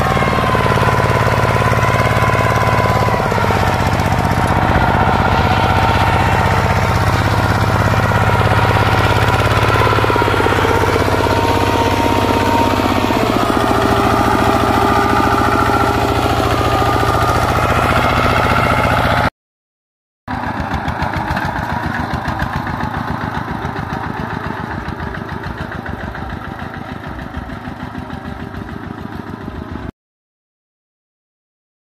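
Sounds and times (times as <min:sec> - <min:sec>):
diesel tractor engine running: 0:00.0 - 0:19.3, 0:20.3 - 0:29.9
harrow dragging through dry soil: 0:00.0 - 0:19.3, 0:20.3 - 0:29.9.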